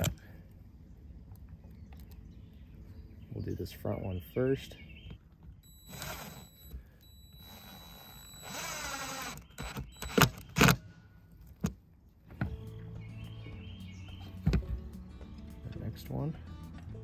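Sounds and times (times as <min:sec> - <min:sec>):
impact driver whining: 0:05.6 - 0:10.9.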